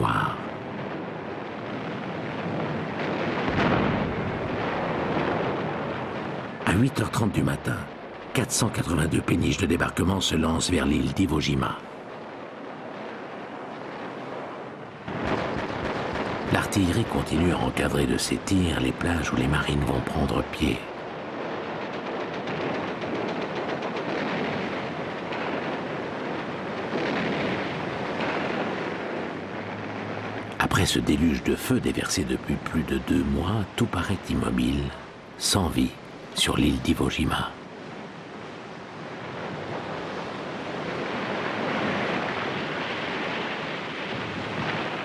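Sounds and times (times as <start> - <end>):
machine-gun fire: 15.1 - 16.6.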